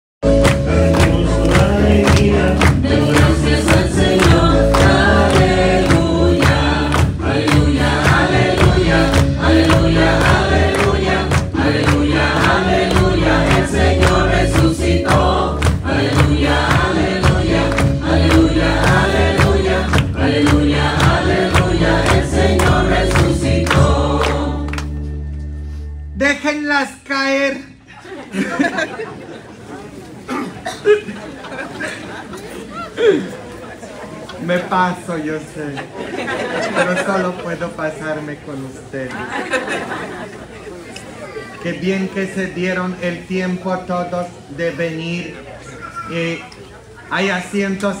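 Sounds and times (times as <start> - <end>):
group singing a hymn: 0.2 - 25.3, 35.9 - 37.4, 39.1 - 40.8
instrumental accompaniment: 0.2 - 26.2.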